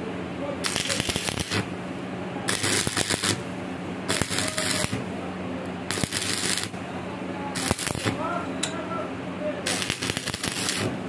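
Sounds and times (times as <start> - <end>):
steady low hum: 0.0 - 11.0
welding arc crackling: 0.6 - 1.7, 2.5 - 3.5, 4.1 - 5.1, 5.9 - 6.8, 7.6 - 8.3, 9.6 - 11.0.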